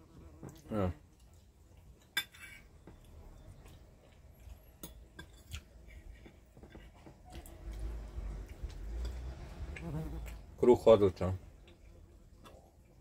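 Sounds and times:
cutlery clinking on plates: 0:02.0 - 0:03.1.

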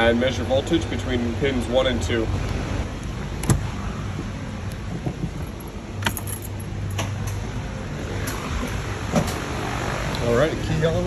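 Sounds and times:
steady low hum: 0:00.0 - 0:11.0
keys jangling: 0:05.4 - 0:06.7.

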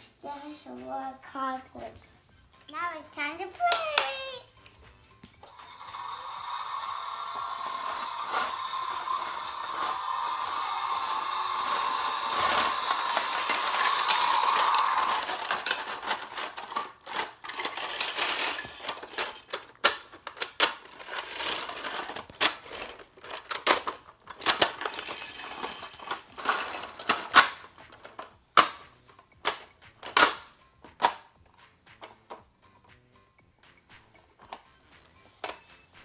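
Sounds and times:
toy rolling on wooden floor: 0:04.6 - 0:20.0, 0:20.6 - 0:28.4
plastic toy clicks and clatters: 0:05.4 - 0:31.3, 0:34.0 - 0:35.8.

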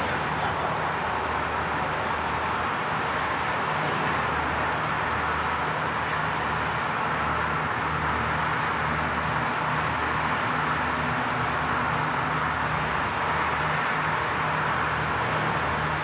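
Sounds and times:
rushing noise: 0:00.0 - 0:11.2
diesel train engine hum: 0:00.0 - 0:16.0.

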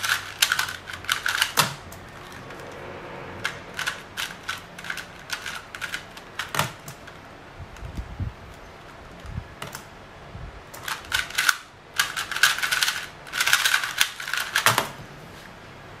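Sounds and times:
puzzle cube layers clicking: 0:00.0 - 0:02.6.

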